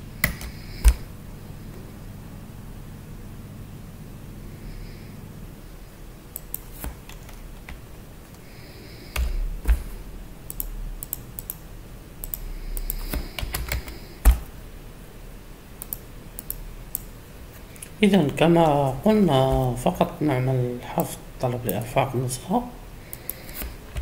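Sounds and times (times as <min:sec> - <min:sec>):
keyboard typing: 0:00.2 - 0:01.1, 0:06.3 - 0:07.8, 0:09.1 - 0:14.5, 0:15.8 - 0:17.1, 0:23.1 - 0:24.0
mouse clicking: 0:06.3 - 0:07.8, 0:09.1 - 0:11.6, 0:12.2 - 0:14.5, 0:15.8 - 0:17.1, 0:23.1 - 0:24.0.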